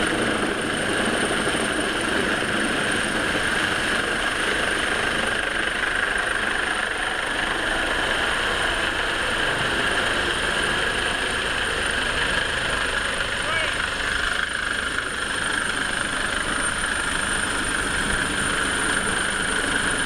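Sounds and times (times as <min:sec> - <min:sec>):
helicopter hovering: 0:00.0 - 0:20.0
boat engines running: 0:01.8 - 0:20.0.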